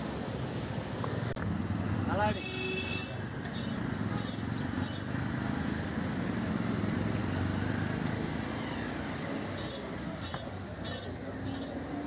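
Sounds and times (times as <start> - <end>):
fish scales scraping on blade: 3.0 - 5.1, 9.5 - 11.8.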